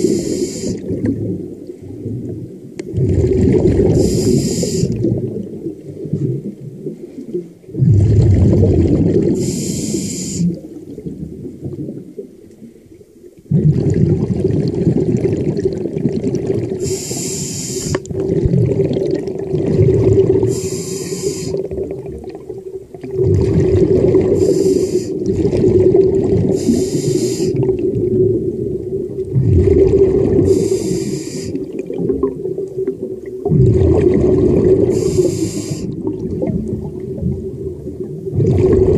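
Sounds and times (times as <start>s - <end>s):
regulator hiss on inhale: 0.0s - 0.9s, 4.0s - 5.0s, 9.4s - 10.6s, 16.8s - 18.1s, 20.4s - 21.7s, 24.3s - 25.3s, 26.5s - 27.7s, 30.4s - 31.7s, 34.9s - 36.0s
bubbling rumble on exhale: 0.0s - 9.8s, 13.4s - 17.0s, 18.0s - 38.9s.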